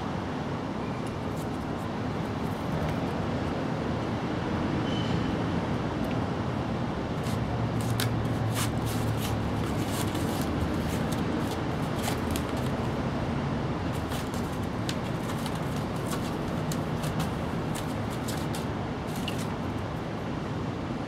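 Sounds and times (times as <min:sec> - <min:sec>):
kitten pawing at cardboard: 0:07.2 - 0:13.0, 0:13.9 - 0:19.7.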